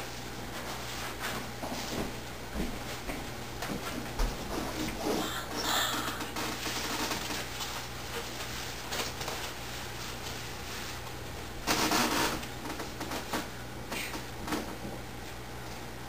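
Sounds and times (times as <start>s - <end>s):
rustling noise: 0.0s - 5.2s, 6.3s - 13.5s
low electrical hum and hiss: 0.0s - 16.0s.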